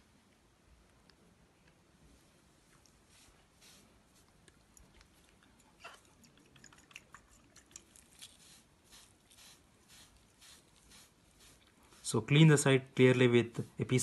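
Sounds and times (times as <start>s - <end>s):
swab rubbing on skin: 2.8s - 5.3s, 7.9s - 12.3s
small clicks and crinkles: 4.2s - 8.4s.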